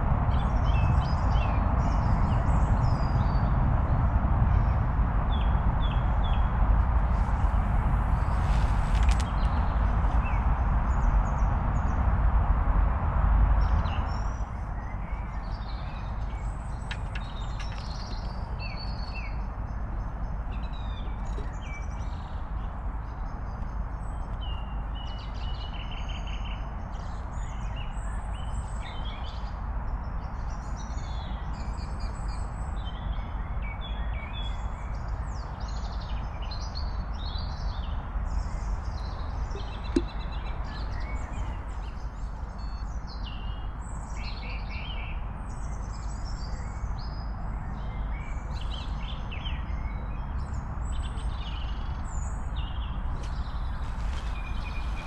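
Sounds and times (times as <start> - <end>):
steady low rumble: 0.0 - 14.6
songbirds chirping and singing: 13.8 - 29.5, 30.1 - 55.0.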